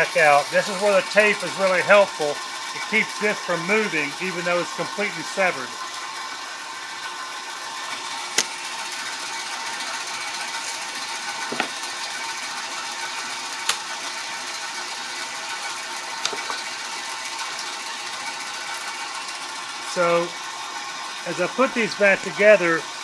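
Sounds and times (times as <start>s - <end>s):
bandsaw running: 0.0s - 23.0s
wood strips knocking: 11.4s - 11.8s, 16.2s - 16.7s.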